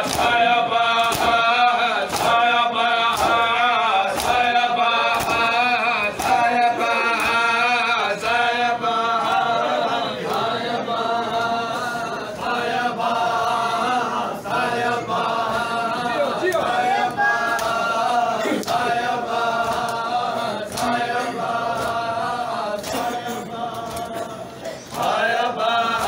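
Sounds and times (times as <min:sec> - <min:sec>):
chest-beating slaps: 0:00.0 - 0:00.4, 0:01.0 - 0:02.4, 0:03.1 - 0:03.5, 0:04.1 - 0:06.6, 0:17.5 - 0:19.0, 0:20.7 - 0:21.0
men chanting a lament: 0:00.0 - 0:26.0.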